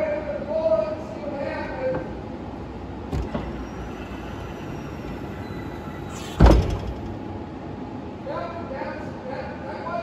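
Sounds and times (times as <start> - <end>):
skid steer engine droning: 3.1 - 6.4
loud metallic clunk: 3.1 - 7.2.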